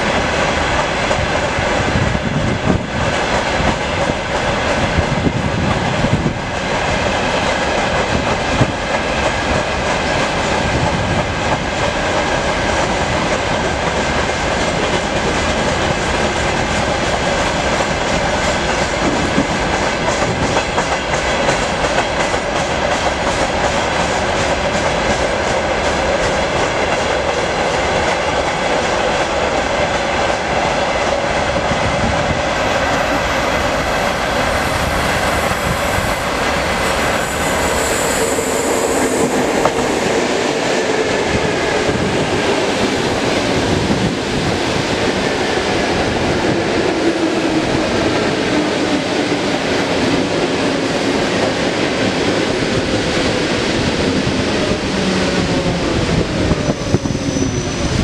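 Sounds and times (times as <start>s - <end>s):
freight train rumbling past: 0.0s - 58.0s
high hiss: 32.6s - 40.3s.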